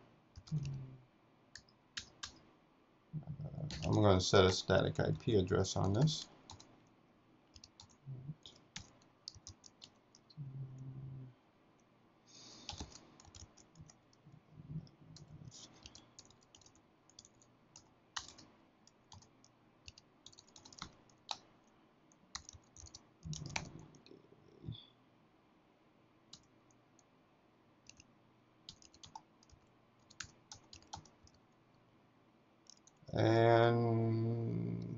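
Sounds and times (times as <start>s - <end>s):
keyboard typing: 0.4s - 0.8s, 1.6s - 2.4s, 3.6s - 4.6s, 5.6s - 6.7s, 7.5s - 10.4s, 12.6s - 14.2s, 14.8s - 21.5s, 22.3s - 24.1s, 27.9s - 28.1s, 28.7s - 31.4s, 32.7s - 33.0s.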